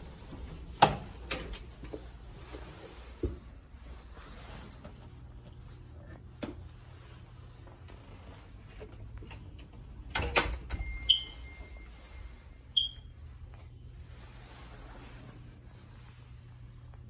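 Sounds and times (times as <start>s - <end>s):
short high electronic beeps: 10.8s - 11.9s.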